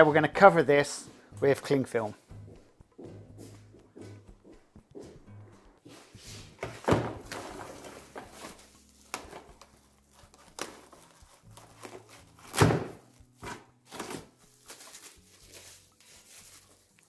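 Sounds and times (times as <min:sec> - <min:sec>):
cling film crinkling: 0:07.3 - 0:13.3, 0:13.9 - 0:17.0.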